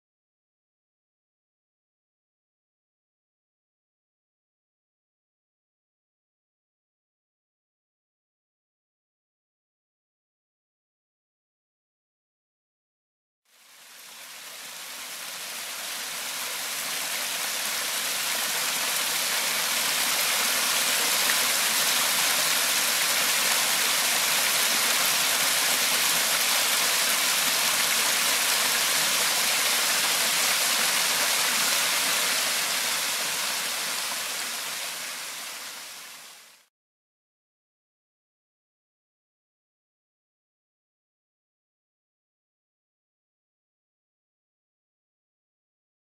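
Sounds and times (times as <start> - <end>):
creek water rushing over rocks: 13.6 - 36.6.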